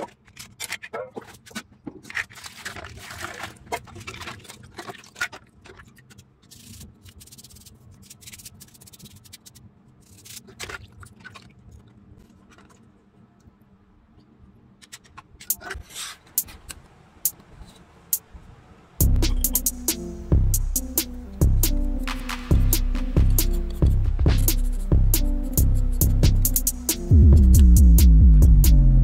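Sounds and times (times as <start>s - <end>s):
scraping and rubbing on phone: 5.8s - 10.6s.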